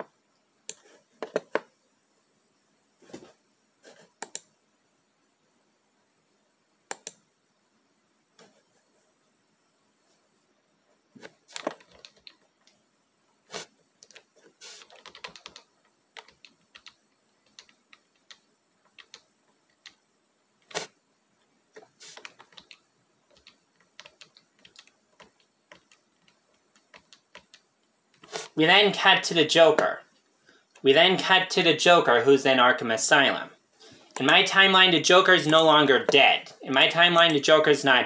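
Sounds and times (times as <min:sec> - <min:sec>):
computer keyboard typing: 0:11.5 - 0:12.4, 0:14.0 - 0:20.0, 0:22.0 - 0:28.3.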